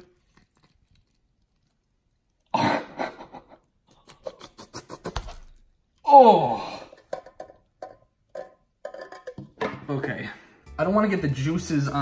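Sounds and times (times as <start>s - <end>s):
meat squelching out of can: 0.0s - 2.5s.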